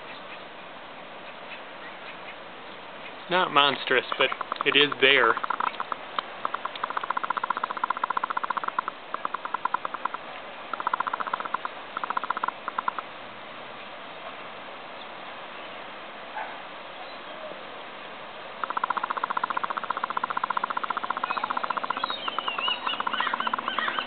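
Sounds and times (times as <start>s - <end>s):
wind: 0.0s - 24.0s
birds chattering trill: 3.1s - 10.2s, 18.6s - 24.0s
high quick bird chirps: 18.7s - 24.0s.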